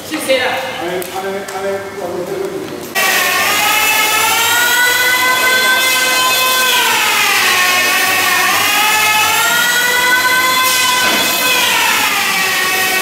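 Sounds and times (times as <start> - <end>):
power tool motor whining: 3.0 - 13.0.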